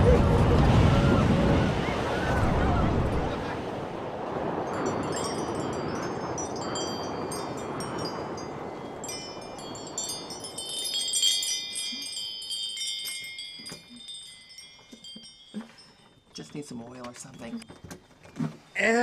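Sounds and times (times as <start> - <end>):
wind noise: 0.0 - 15.5
wind chime tinkling: 4.6 - 18.0.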